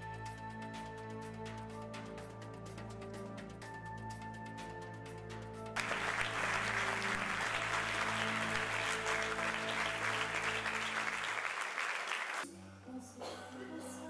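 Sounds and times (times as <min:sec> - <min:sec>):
soft instrumental music: 0:00.0 - 0:12.5
audience applauding: 0:05.8 - 0:12.4.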